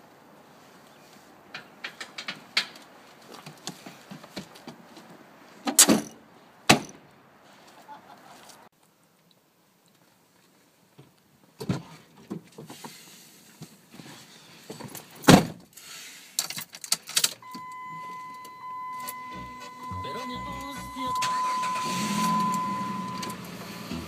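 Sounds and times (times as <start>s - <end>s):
knocks and rustles: 1.5s - 7.0s
engine cranking: 16.7s - 24.0s
car door shutting: 17.4s - 24.0s
dashboard warning tone: 17.4s - 24.0s.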